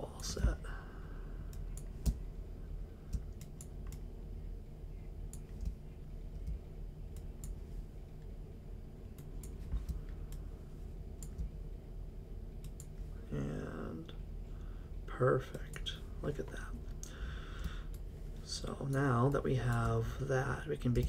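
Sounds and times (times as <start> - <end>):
low steady hum: 0.0 - 21.0
computer mouse clicks: 3.1 - 4.0, 5.3 - 7.6, 11.2 - 11.6, 12.6 - 13.0.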